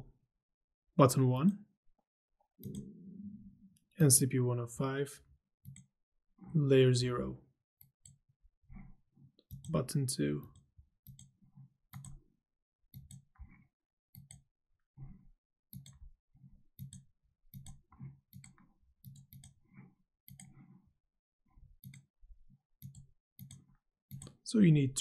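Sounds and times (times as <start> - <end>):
computer mouse clicking: 2.6 - 3.0, 12.0 - 12.2, 14.2 - 14.4, 15.8 - 16.0, 16.8 - 20.8, 21.8 - 22.1, 22.8 - 24.4.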